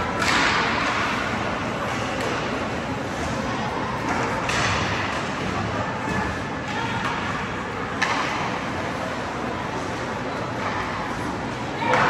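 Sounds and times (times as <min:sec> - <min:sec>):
spectators talking: 0:00.0 - 0:12.0.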